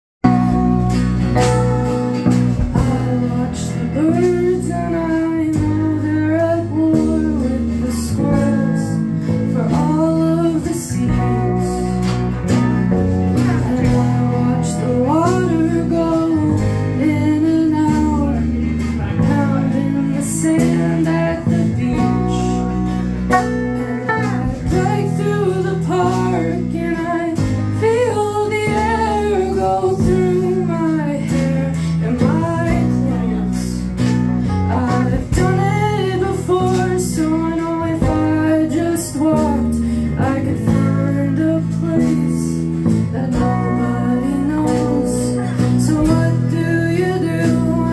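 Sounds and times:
electric bass: 0:00.0 - 0:47.9
electric guitar: 0:00.2 - 0:47.9
strummed acoustic guitar: 0:00.2 - 0:47.9
woman singing: 0:00.2 - 0:47.9.

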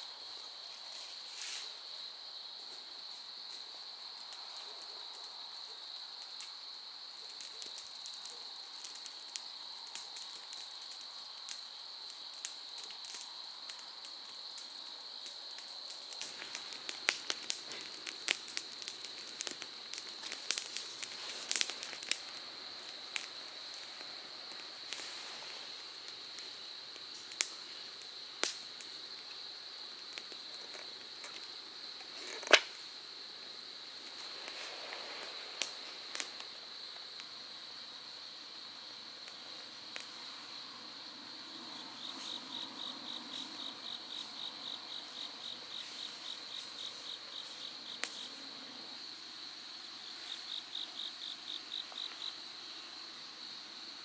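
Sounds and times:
sharp crackles and clicks: 0:14.6 - 0:27.6, 0:28.4 - 0:29.4, 0:30.0 - 0:32.9.

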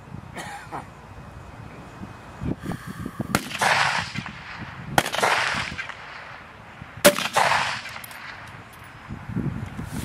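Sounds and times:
rifle shots with echo: 0:03.3 - 0:06.4, 0:07.0 - 0:08.4.

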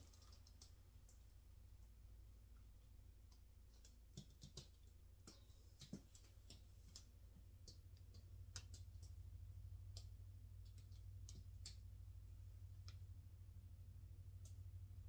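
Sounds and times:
faint irregular clicks: 0:00.0 - 0:13.2, 0:14.4 - 0:14.7
low room hum: 0:00.0 - 0:15.0.

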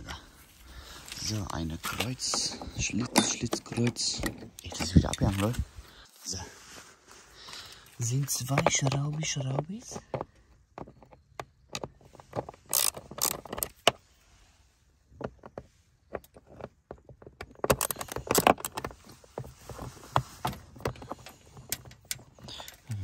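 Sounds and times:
screwdriver clicking on screws: 0:12.7 - 0:13.7
plastic rattling: 0:15.1 - 0:22.9.

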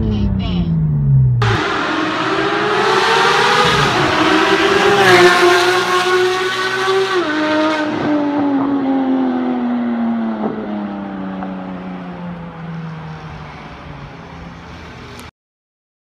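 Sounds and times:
car passing by: 0:01.4 - 0:09.7
sports car engine at high revs: 0:01.4 - 0:12.6.

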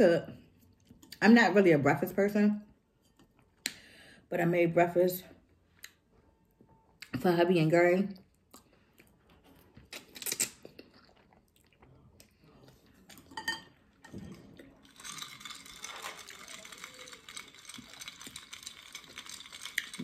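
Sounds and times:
noodles slurped and chewed: 0:08.4 - 0:13.3, 0:14.3 - 0:20.0.

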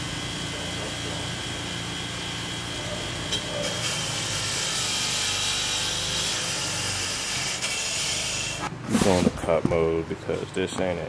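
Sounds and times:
power tool cutting: 0:00.0 - 0:08.7.

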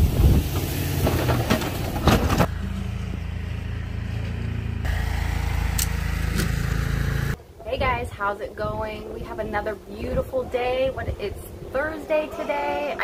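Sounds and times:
plow blade scraping snow: 0:00.0 - 0:07.4
truck engine running: 0:00.0 - 0:07.4.

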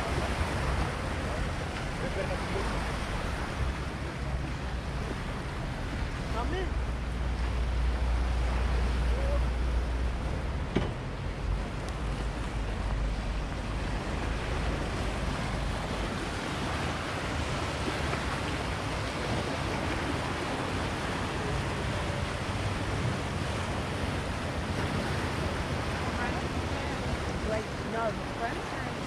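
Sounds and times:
brief knock: 0:10.7 - 0:11.0.

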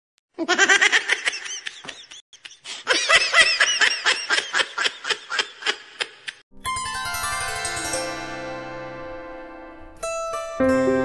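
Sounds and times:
rapid laughter: 0:00.4 - 0:06.4.

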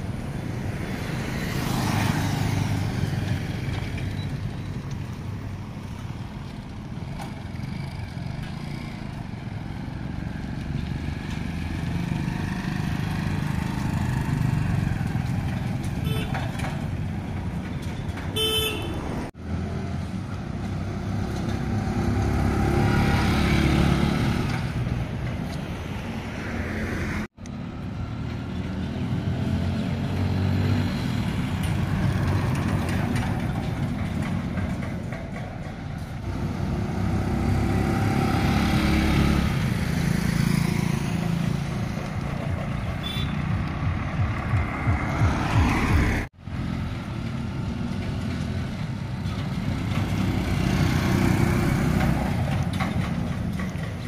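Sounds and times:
vehicle horn toot: 0:16.1 - 0:16.4, 0:18.4 - 0:19.1, 0:43.0 - 0:43.6.

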